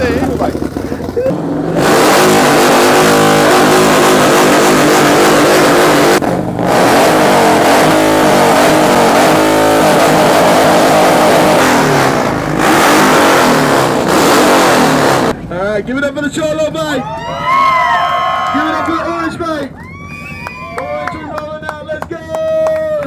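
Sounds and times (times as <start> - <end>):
motorcycle engines revving: 0.0 - 21.7.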